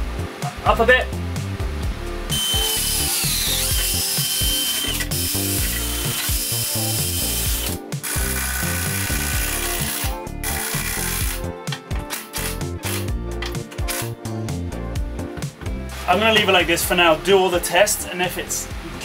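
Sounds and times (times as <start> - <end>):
cordless drill whining: 2.3 - 11.4.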